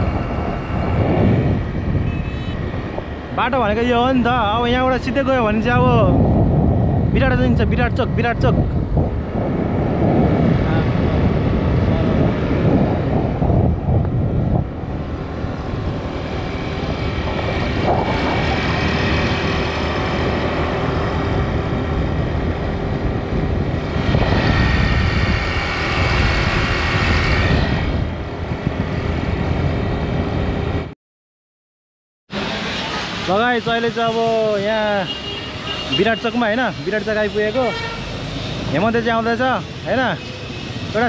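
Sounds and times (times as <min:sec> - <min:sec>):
wind rushing over microphone: 0:00.0 - 0:30.9
road noise: 0:00.0 - 0:31.0, 0:32.3 - 0:41.0.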